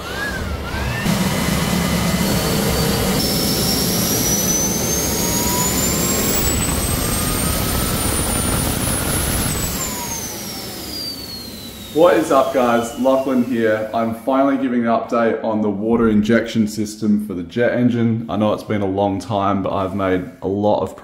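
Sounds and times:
turbojet engine roar: 0:00.0 - 0:14.7
turbine whine: 0:00.0 - 0:14.8.

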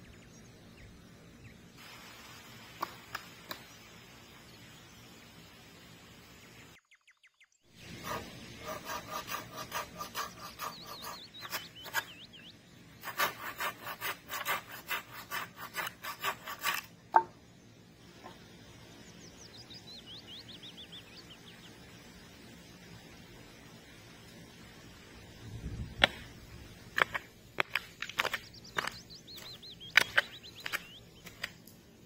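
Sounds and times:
bird chirping: 0:06.2 - 0:07.7, 0:09.8 - 0:13.3, 0:18.3 - 0:22.2, 0:27.0 - 0:31.7
hand saw cutting wood: 0:07.9 - 0:12.2, 0:13.0 - 0:16.9.

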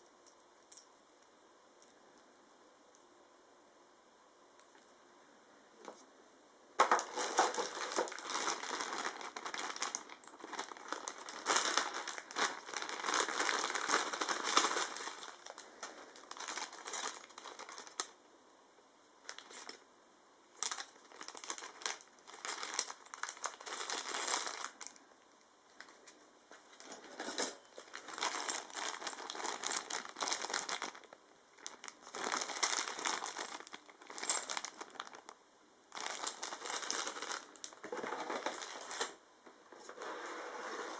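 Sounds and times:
plastic bags crinkling: 0:06.8 - 0:18.2, 0:19.2 - 0:19.8, 0:20.6 - 0:25.0, 0:27.2 - 0:39.2.

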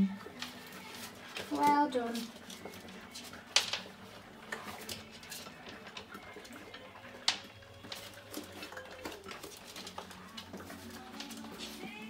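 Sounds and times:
puppies crunching dry kibble: 0:00.2 - 0:12.0.

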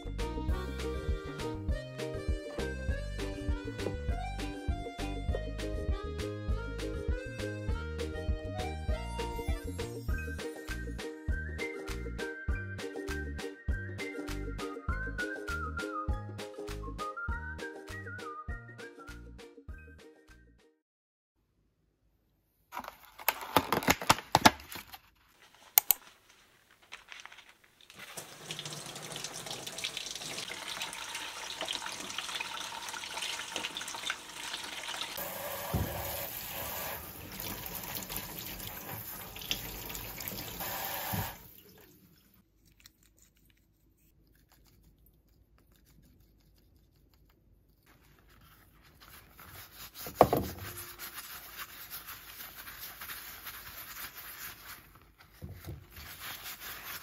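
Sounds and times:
plastic pack clicking: 0:22.8 - 0:25.0
water running from tap: 0:27.9 - 0:42.1
hands rubbing lemons in bowl: 0:42.0 - 0:57.0.

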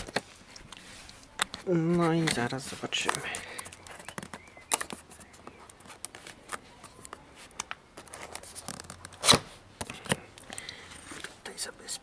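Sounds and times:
fingers handling cardboard box: 0:01.4 - 0:10.2.

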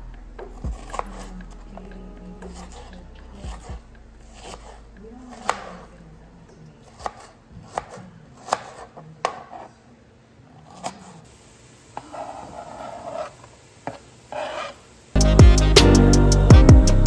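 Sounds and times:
rustling scrape of onion pushed: 0:12.1 - 0:13.4, 0:14.3 - 0:14.8.

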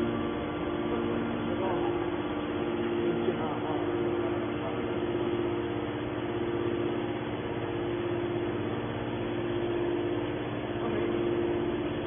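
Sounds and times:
hydraulic power unit humming: 0:00.0 - 0:12.0.

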